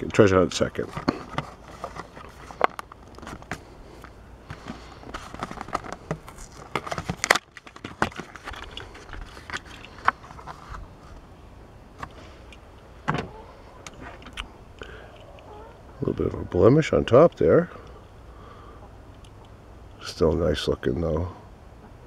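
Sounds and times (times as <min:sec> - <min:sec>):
plastic blister pack crackling: 0:04.5 - 0:10.5.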